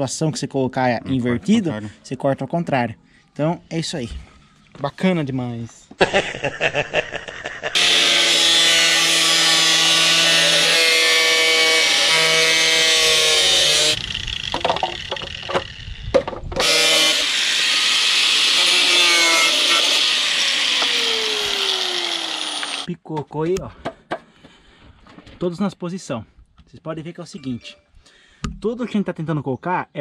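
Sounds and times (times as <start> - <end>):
power tool whining and cutting: 7.8 - 22.9
knocks: 14.5 - 16.6.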